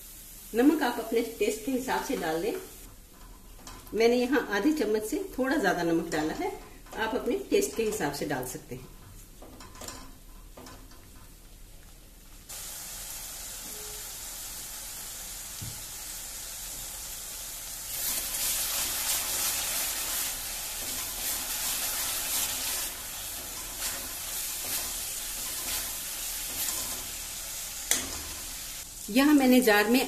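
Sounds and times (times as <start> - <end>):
masala sizzling in a pan: 0.0 - 30.0
spatula stirring: 17.9 - 28.6.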